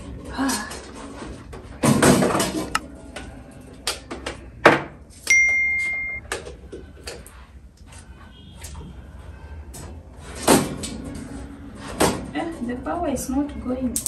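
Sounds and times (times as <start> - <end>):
high electronic beep: 5.3 - 6.2.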